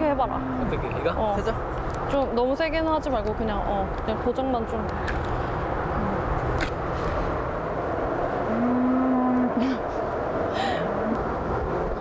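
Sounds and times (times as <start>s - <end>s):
cow mooing: 8.5s - 9.6s.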